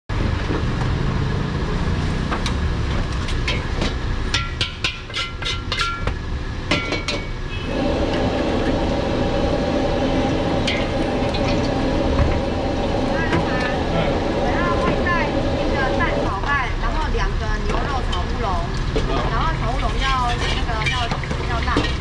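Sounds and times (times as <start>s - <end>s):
gas wok burner running: 0.1s - 22.0s
steady rushing flame noise: 0.2s - 22.0s
ladle clanking on wok: 3.3s - 6.1s.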